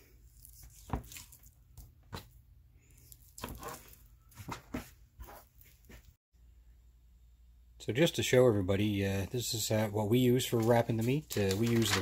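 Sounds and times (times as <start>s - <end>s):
knife cutting meat: 0.3s - 1.4s.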